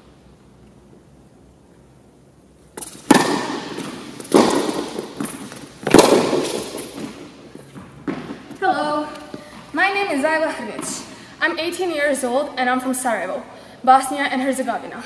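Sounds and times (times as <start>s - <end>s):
racket striking tennis ball: 2.7s - 9.8s.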